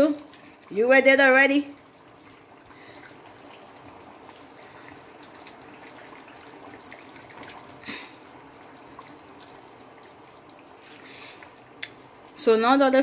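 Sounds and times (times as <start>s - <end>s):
stew simmering and bubbling: 0.0s - 13.0s.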